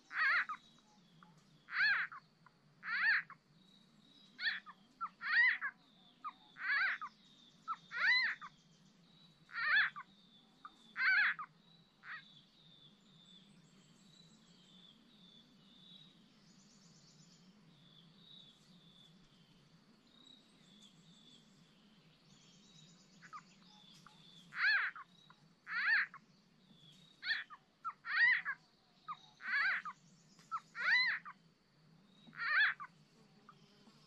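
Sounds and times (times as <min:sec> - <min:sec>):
frog croaking: 0:32.3 - 0:32.9.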